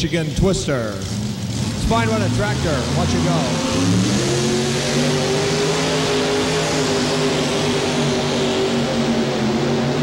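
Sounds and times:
tractor engine at high revs: 0.0 - 10.0.

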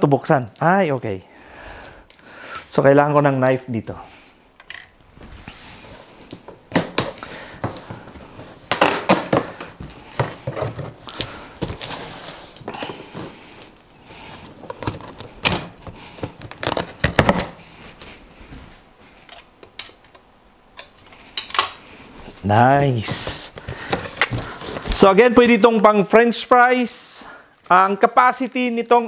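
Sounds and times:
packing tape tearing: 6.7 - 7.8, 8.7 - 17.6.

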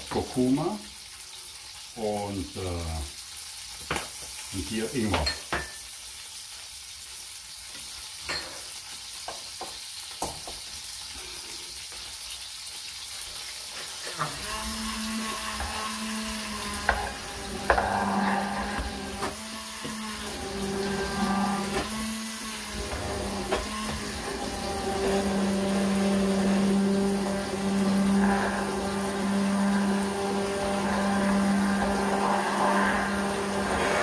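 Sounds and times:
food sizzling in a pan: 0.0 - 34.0
stick blender motor humming: 14.0 - 34.0
blender knocking against vessel: 14.4 - 26.9.

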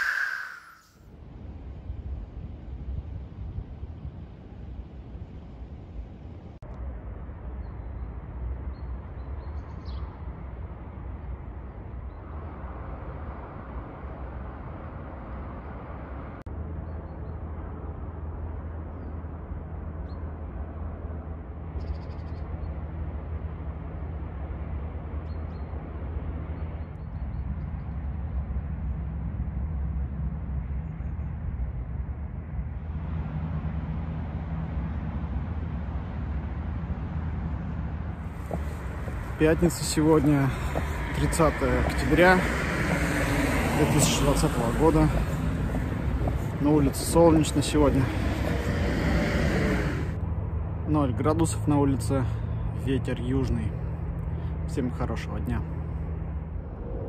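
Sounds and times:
high bird chirps: 0.0 - 1.0
low rumble: 55.7 - 57.0.

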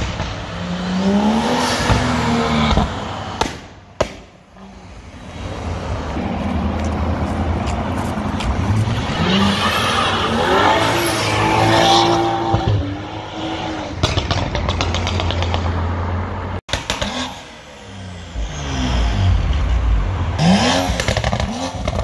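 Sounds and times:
sharp cracks: 2.7 - 4.4.

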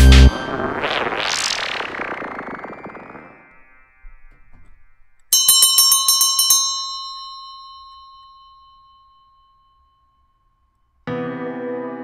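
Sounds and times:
bell struck in a trill: 5.3 - 10.7.

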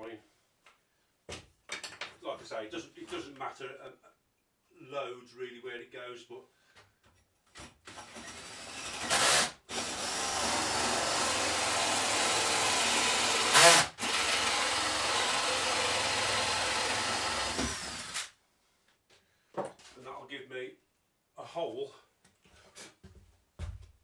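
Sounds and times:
drill boring through wood: 7.9 - 18.3.

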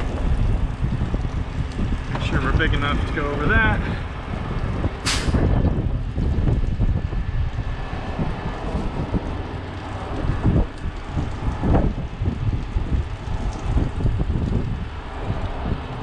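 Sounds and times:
wind buffeting microphone: 0.0 - 16.0
short sharp hiss: 5.0 - 5.4.

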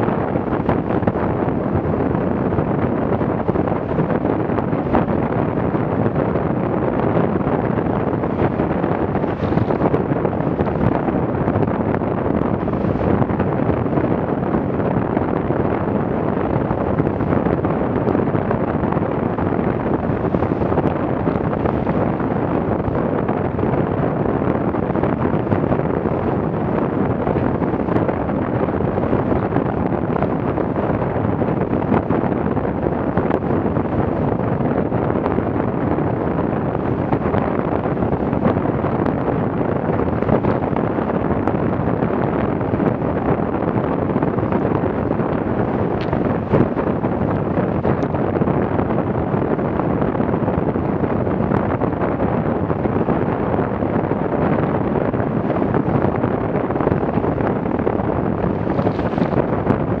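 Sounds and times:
wind buffeting microphone: 0.0 - 60.0.

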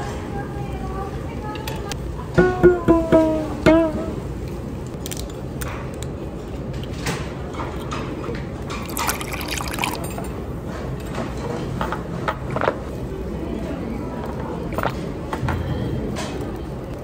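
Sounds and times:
steady background hum: 0.0 - 17.0
liquid poured into glass: 8.8 - 10.2.

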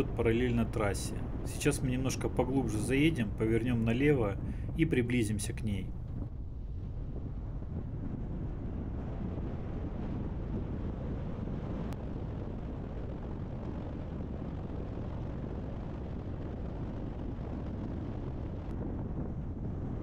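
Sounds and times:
car road and engine rumble: 0.0 - 6.8
wind on microphone: 0.0 - 20.0.

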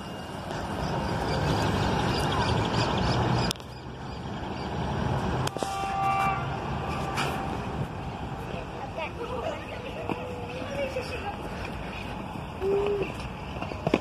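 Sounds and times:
high metallic ringing tones: 0.0 - 2.5.

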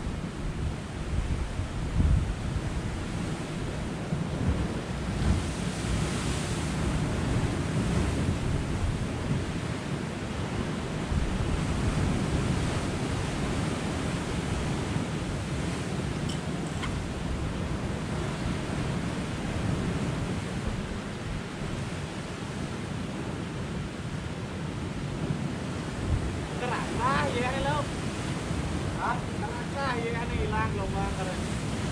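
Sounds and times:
surf washing against rocks: 0.0 - 31.9
wind rumbling on microphone: 0.0 - 31.9.

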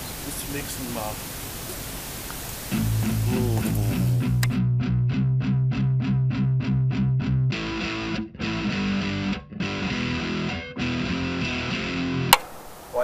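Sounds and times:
distorted electric guitar: 2.7 - 12.4.

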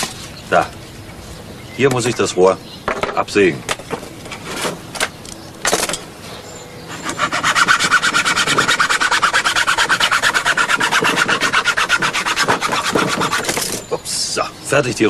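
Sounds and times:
hacksaw sawing cardboard tube: 6.9 - 13.8.

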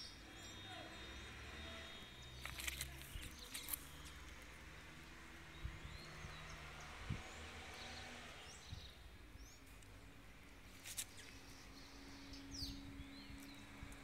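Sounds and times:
small clicks and scrapes: 2.4 - 4.4, 10.7 - 11.4.

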